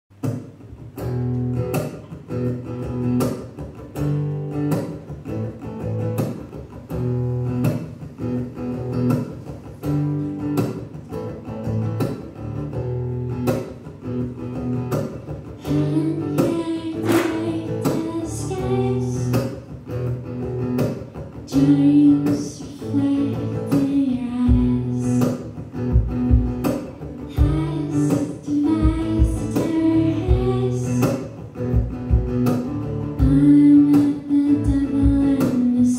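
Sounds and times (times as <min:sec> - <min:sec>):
acoustic guitar strumming: 0:00.2 - 0:35.9
guitar lead melody: 0:00.2 - 0:35.9.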